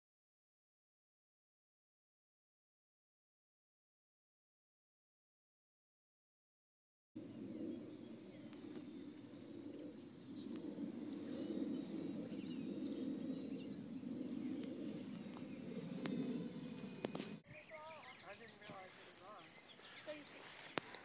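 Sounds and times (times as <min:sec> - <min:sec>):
faint bird chirps: 0:07.2 - 0:21.0
steady low rumble: 0:07.2 - 0:21.0.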